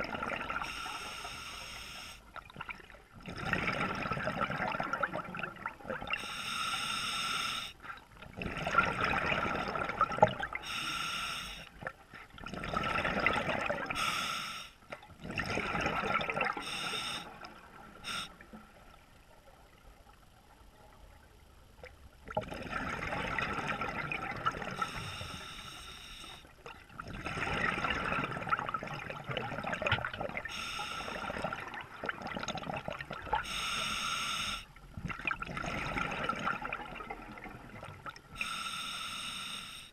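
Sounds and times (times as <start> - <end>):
exhaled bubbles bursting: 0.0 - 0.6, 2.5 - 6.2, 8.3 - 10.6, 11.8 - 14.0, 15.2 - 16.6, 22.2 - 24.8, 26.7 - 30.5, 31.2 - 33.4, 35.0 - 38.3
diver breathing through regulator: 0.6 - 2.2, 6.2 - 7.8, 10.6 - 11.7, 14.0 - 14.8, 16.6 - 17.4, 18.0 - 18.4, 24.8 - 26.5, 30.5 - 31.5, 33.4 - 34.7, 38.4 - 39.9.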